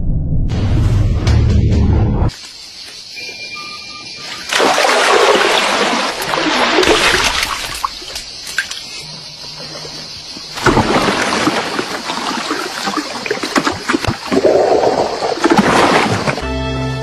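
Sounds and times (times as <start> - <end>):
water splashing and trickling: 3.1 - 16.4.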